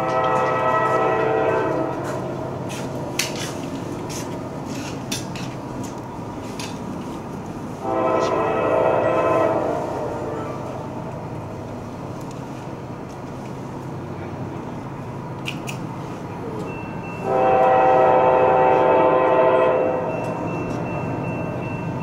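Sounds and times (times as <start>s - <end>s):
locomotive air horn: 0.0s - 2.8s, 7.8s - 10.8s, 17.2s - 20.1s
train rumbling: 0.0s - 22.0s.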